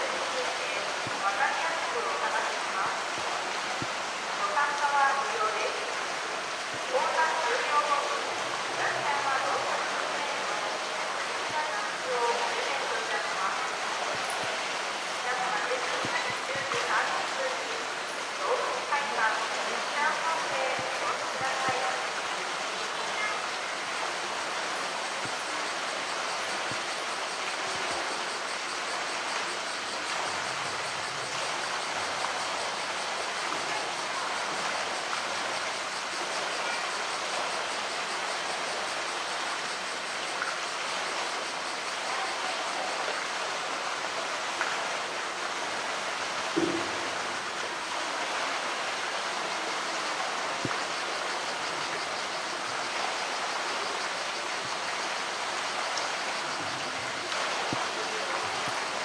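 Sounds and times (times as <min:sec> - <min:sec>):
water rushing and churning: 0:00.0 - 0:59.0
short knock: 0:46.6 - 0:47.2.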